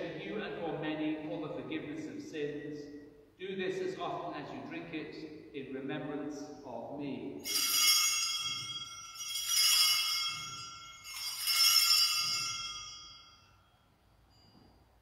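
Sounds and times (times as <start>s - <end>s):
small bells ringing: 7.4s - 15.0s.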